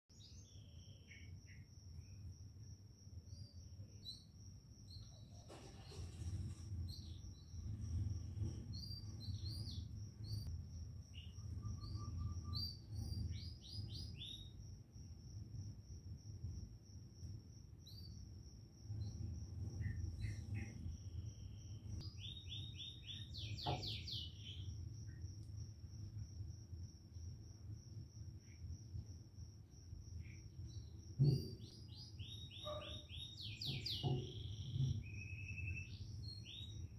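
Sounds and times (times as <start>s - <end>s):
small birds chirping: 3.3s - 10.5s, 11.1s - 14.6s, 19.8s - 25.2s, 30.2s - 36.9s
low background rumble: 5.9s - 13.6s.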